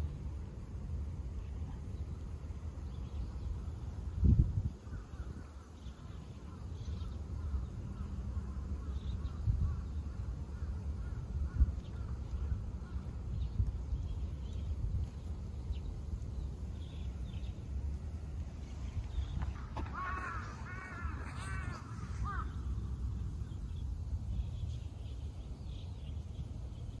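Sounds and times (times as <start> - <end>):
low outdoor rumble: 0.0 - 27.0
crow cawing: 19.6 - 22.6.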